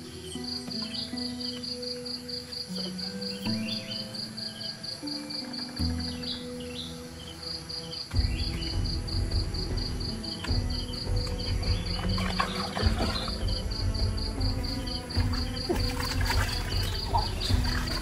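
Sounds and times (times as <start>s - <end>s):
cricket chirping: 0.0s - 18.0s
background music with bass beat: 8.1s - 18.0s.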